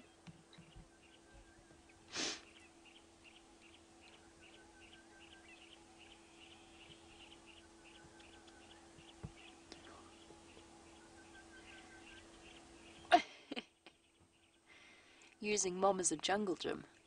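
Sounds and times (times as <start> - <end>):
faint high bird chirps: 0.0 - 14.7
steady low hum: 0.0 - 17.0
breathy puff on microphone: 2.1 - 2.4.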